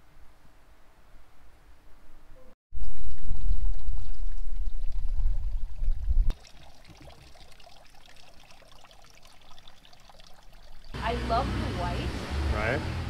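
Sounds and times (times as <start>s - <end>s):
faint trickle of water: 2.8s - 11.0s.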